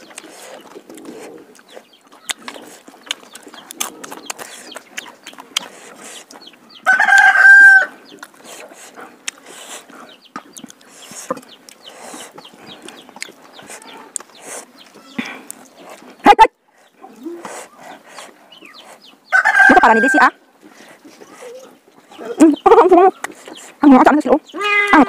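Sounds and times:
rooster crowing: 0:06.8 - 0:07.9, 0:19.3 - 0:20.3.

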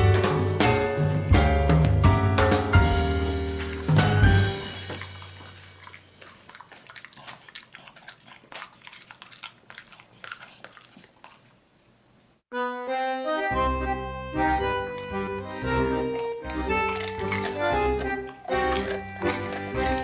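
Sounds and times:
dog chewing food: 0:03.6 - 0:11.8, 0:14.6 - 0:20.0
accordion tango music: 0:12.5 - 0:20.0.

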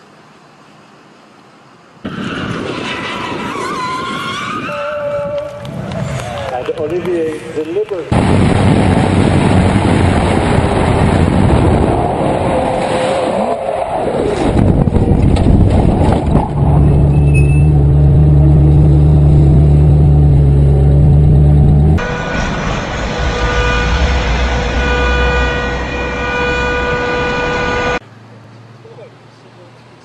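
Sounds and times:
wind rush on microphone: 0:02.1 - 0:07.5, 0:08.1 - 0:17.6
sports car engine at speed: 0:16.3 - 0:25.8.

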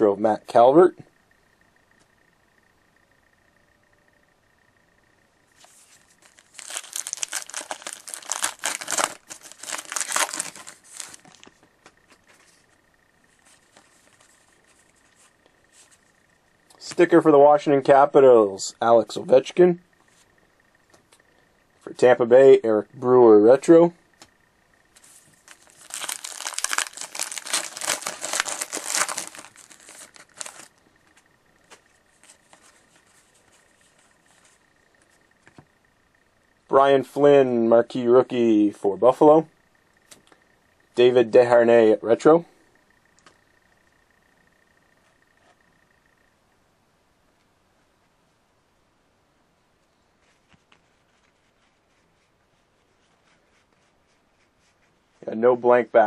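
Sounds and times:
wrapper tearing and crinkling: 0:06.2 - 0:11.5, 0:25.4 - 0:30.7.

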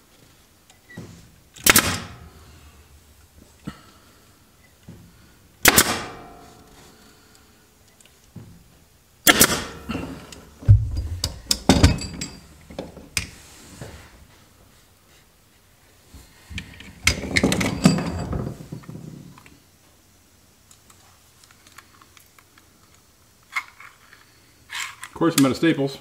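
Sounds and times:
staple gun firing: 0:01.6 - 0:02.2, 0:05.6 - 0:06.1, 0:09.3 - 0:09.8.

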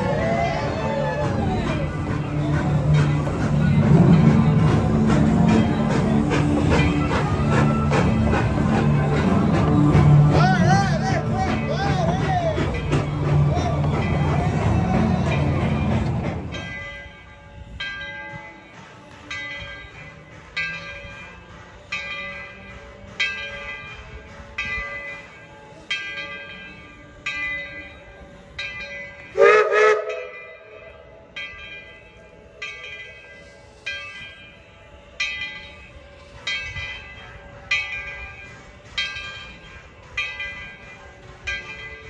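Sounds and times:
locomotive bell ringing: 0:00.0 - 0:42.0
steam whistle blast: 0:29.4 - 0:30.4.

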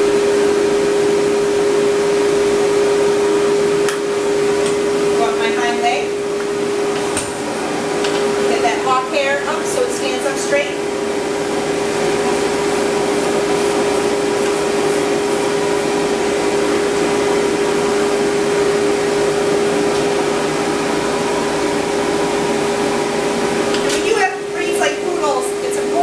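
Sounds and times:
pet dryer blowing air: 0:00.0 - 0:26.0.

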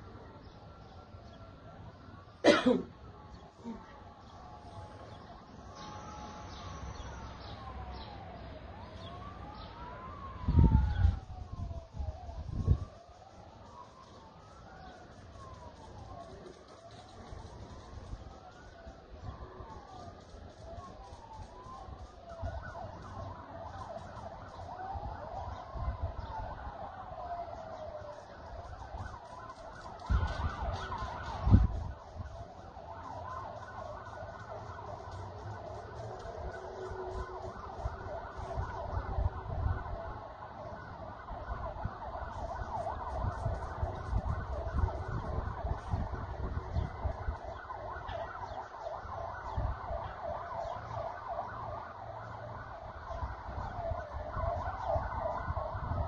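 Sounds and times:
emergency sirens wailing: 0:00.0 - 0:56.0
low rumbling gusts: 0:10.2 - 0:13.0, 0:24.2 - 0:48.0, 0:52.6 - 0:56.0.

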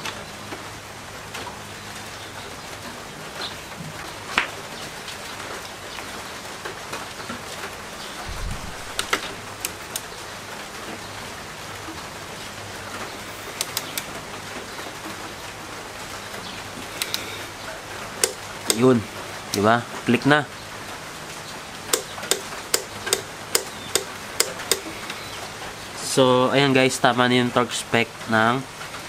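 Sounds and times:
steady hiss: 0:04.6 - 0:29.0
torque wrench clicking: 0:13.6 - 0:14.0, 0:17.0 - 0:17.3, 0:18.2 - 0:18.8, 0:21.9 - 0:24.9.

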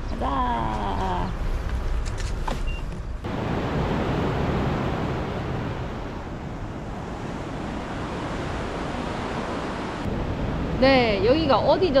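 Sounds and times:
sea surf washing: 0:03.2 - 0:12.0
wind on microphone: 0:03.2 - 0:12.0.

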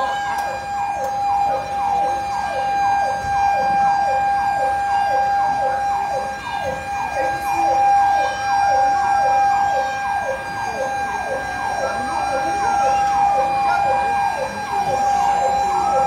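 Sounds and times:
fire truck siren yelping: 0:00.0 - 0:16.0
steady high siren tone: 0:00.0 - 0:16.0.

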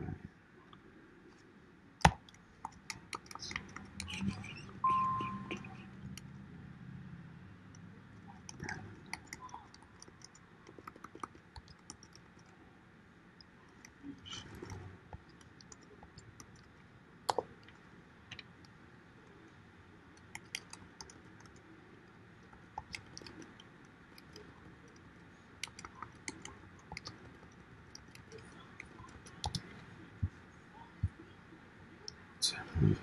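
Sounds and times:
typing on computer keyboard: 0:02.0 - 0:04.4, 0:08.3 - 0:12.5, 0:20.2 - 0:21.6, 0:25.6 - 0:29.8.

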